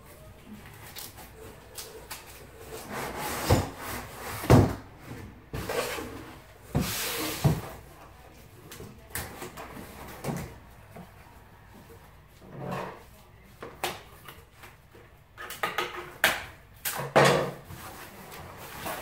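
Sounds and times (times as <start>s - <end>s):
cardboard scraping and rustling: 2.2s - 7.9s.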